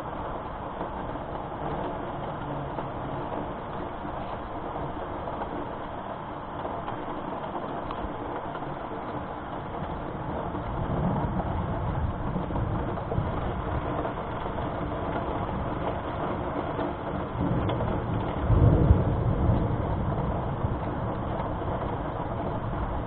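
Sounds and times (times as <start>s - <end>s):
steady rain: 0.0s - 23.0s
distant thunder rumbling: 9.7s - 23.0s.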